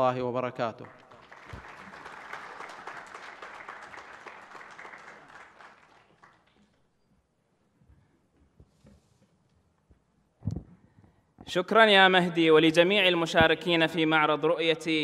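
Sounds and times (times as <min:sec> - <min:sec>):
audience applauding: 0:00.8 - 0:06.8.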